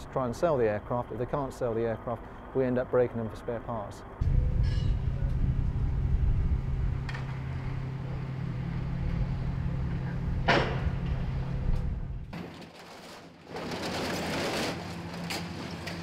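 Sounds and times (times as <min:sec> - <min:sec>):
machinery engine humming: 0:03.2 - 0:12.4
metallic bang: 0:04.2 - 0:12.4.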